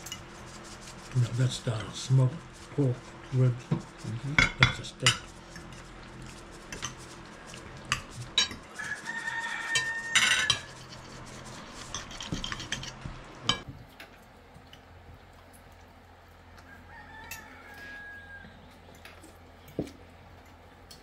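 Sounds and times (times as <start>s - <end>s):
cutlery clinking and scraping plates: 4.4s - 5.8s, 7.6s - 13.7s.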